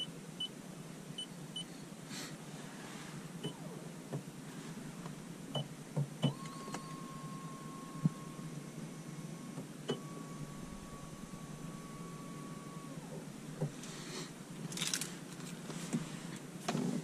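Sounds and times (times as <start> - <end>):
electric motor whining: 6.3 - 13.8.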